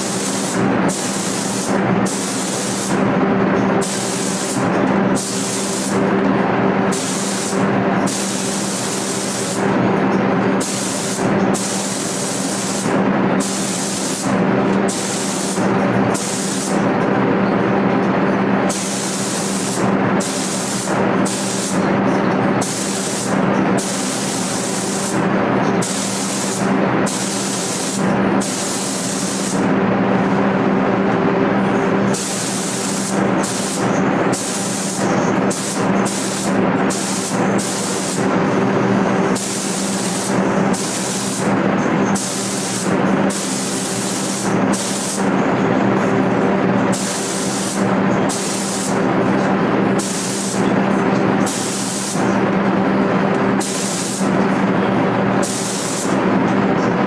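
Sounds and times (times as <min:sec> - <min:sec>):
spray gun hissing: 0:00.0 - 0:03.0, 0:03.8 - 0:06.0, 0:06.9 - 0:09.6, 0:10.6 - 0:16.8, 0:18.7 - 0:21.8, 0:22.6 - 0:25.2, 0:25.8 - 0:29.7, 0:32.1 - 0:38.3, 0:39.4 - 0:41.5, 0:42.2 - 0:45.3, 0:46.9 - 0:49.0, 0:50.0 - 0:50.7, 0:51.5 - 0:52.3, 0:53.6 - 0:54.4, 0:55.4 - 0:56.2
steady low hum: 0:00.0 - 0:57.0.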